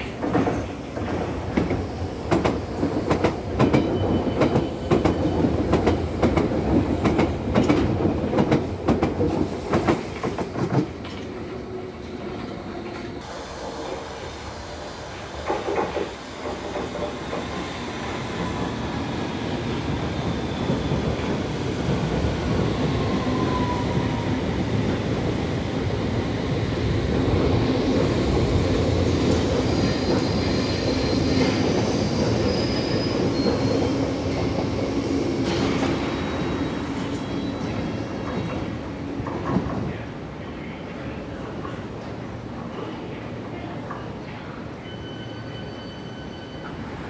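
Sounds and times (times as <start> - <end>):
train wheels rumbling on rail: 0.0 - 44.6
high wheel squeals: 29.6 - 34.6, 44.8 - 47.0.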